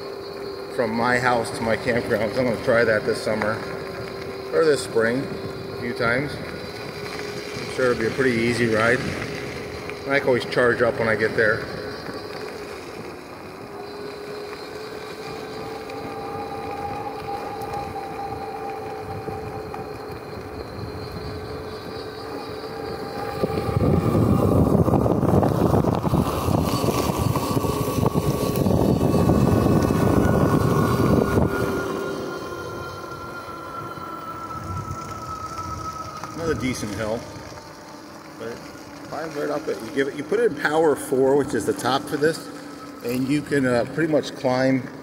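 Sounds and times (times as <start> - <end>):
electric hub motor whining: 0.0 - 45.0
tyre and road noise: 0.0 - 45.0
loud rushing rumble: 22.7 - 39.7.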